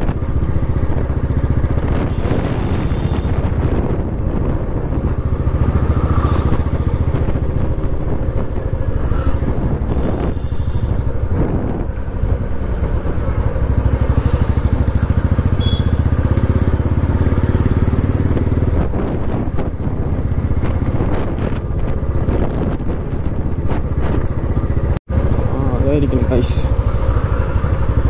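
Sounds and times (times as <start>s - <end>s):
motorcycle engine running: 0.0s - 28.0s.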